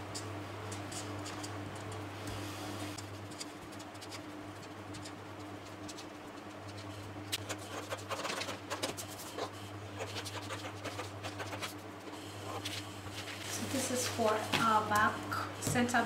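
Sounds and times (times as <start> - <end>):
marker scratching on paper: 3.4 - 11.8.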